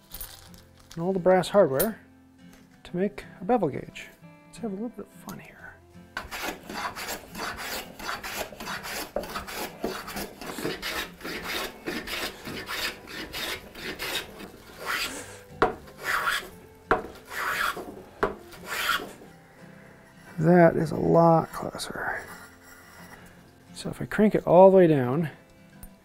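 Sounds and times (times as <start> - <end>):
hand plane shaving wood: 6.2 - 19.2
sharp knocks: 16.9 - 17.2.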